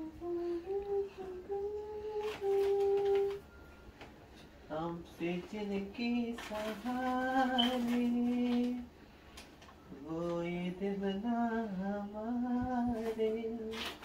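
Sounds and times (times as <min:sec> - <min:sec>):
person humming: 0:00.0 - 0:03.4, 0:04.7 - 0:08.9.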